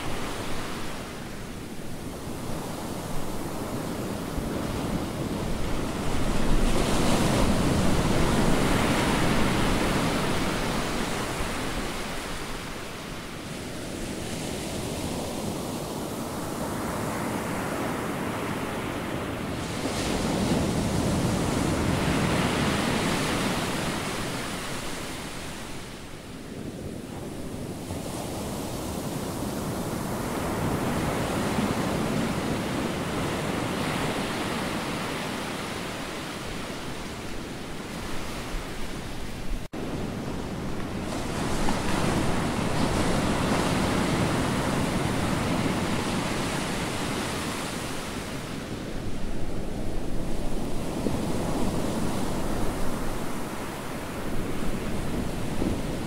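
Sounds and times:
ocean surf breaking: 0:00.0 - 0:26.2, 0:27.2 - 0:56.0
wind: 0:00.0 - 0:56.0.

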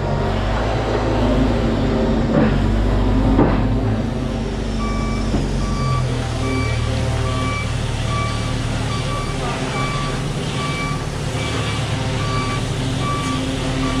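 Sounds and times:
heavy vehicle engine running: 0:00.0 - 0:14.0
reversing alarm beeping: 0:04.7 - 0:14.0.

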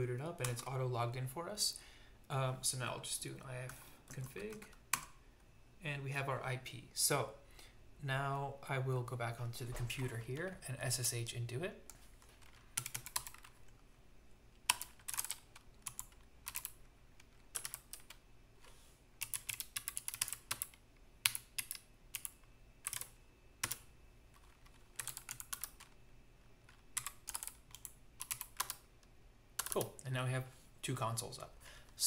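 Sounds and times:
typing on computer keyboard: 0:11.9 - 0:13.6, 0:14.7 - 0:18.2, 0:19.2 - 0:26.0, 0:26.7 - 0:28.9, 0:29.6 - 0:29.9.

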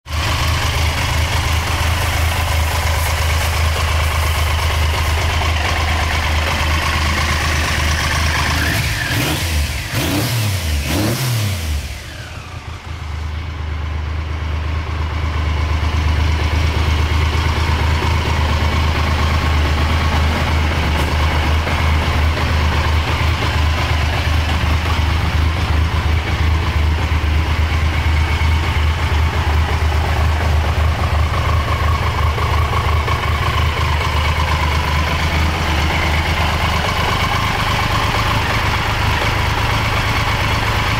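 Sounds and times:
motorcycle engine idling: 0:00.1 - 0:40.9.

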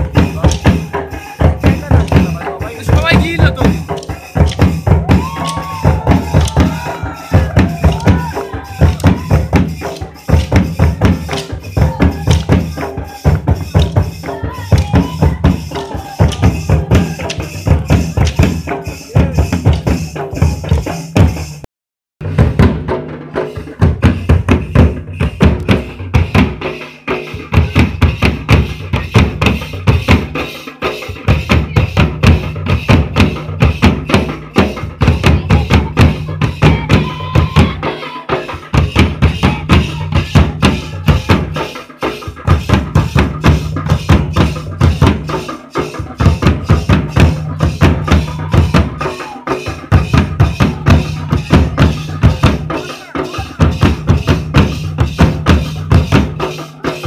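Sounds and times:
fast dense drumming: 0:00.0 - 0:21.6, 0:22.2 - 0:57.0
person singing: 0:05.0 - 0:21.0, 0:35.0 - 0:42.2, 0:45.2 - 0:54.8.

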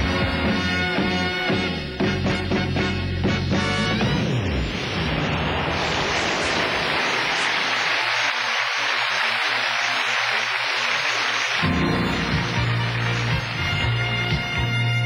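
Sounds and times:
audience cheering and applauding: 0:04.9 - 0:15.0.

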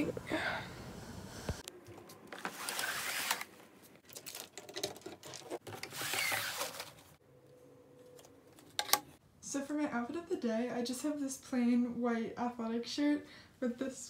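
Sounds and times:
small objects clicking and rustling: 0:04.0 - 0:07.0.

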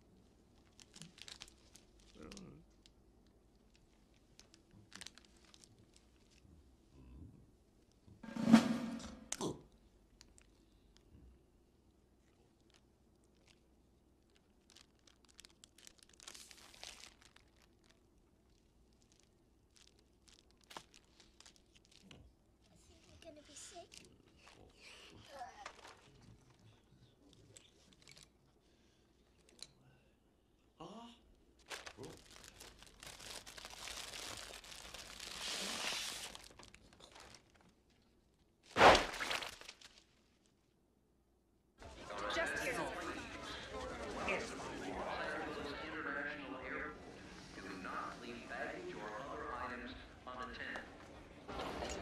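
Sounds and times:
crisp packet crinkling: 0:00.5 - 0:02.9, 0:03.5 - 0:06.4, 0:12.2 - 0:22.3, 0:23.0 - 0:26.6, 0:27.5 - 0:28.3, 0:31.6 - 0:38.0, 0:38.6 - 0:40.2
paper bag bursting bang: 0:38.7 - 0:39.8.

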